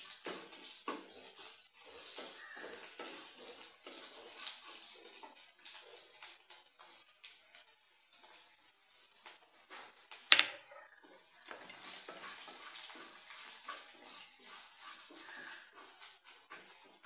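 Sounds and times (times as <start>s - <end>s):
onions sizzling in hot oil: 11.4s - 16.9s.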